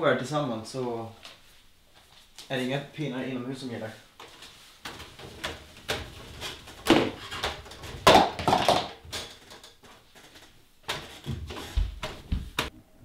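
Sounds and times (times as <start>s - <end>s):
footsteps on a staircase: 10.9s - 12.7s.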